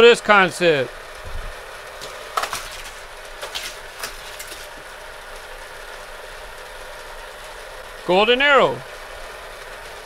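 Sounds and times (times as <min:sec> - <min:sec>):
toy car clattering on plastic track: 0:02.0 - 0:04.8.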